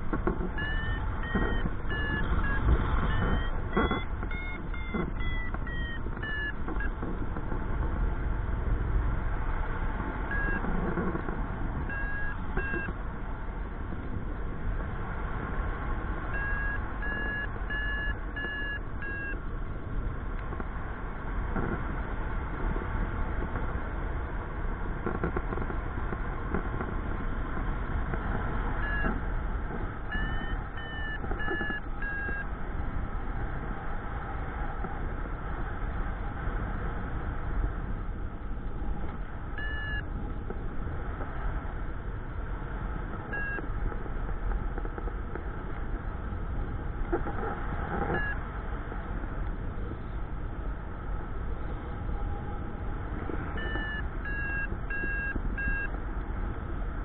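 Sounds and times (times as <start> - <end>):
variometer beeping: 0.0 - 7.7, 10.2 - 13.1, 16.2 - 19.6, 28.1 - 32.6, 38.7 - 40.7, 43.0 - 48.5, 51.2 - 56.1
wind rush on microphone: 0.0 - 57.0.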